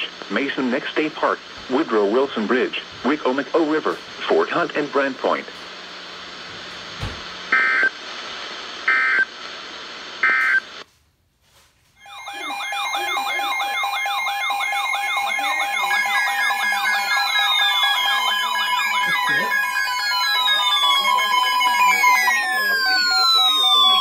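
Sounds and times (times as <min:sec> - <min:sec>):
broadcast hiss: 0:00.0 - 0:24.0
steady alarm beeps: 0:12.0 - 0:24.0
warbling data bursts: 0:12.0 - 0:24.0
warbling siren-like alarm tones: 0:12.0 - 0:24.0.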